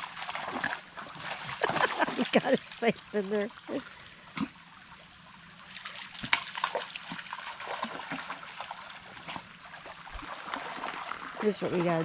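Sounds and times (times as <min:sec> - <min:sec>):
dog splashing in water: 0:00.0 - 0:02.9, 0:05.8 - 0:12.0
creek trickling: 0:00.0 - 0:12.0.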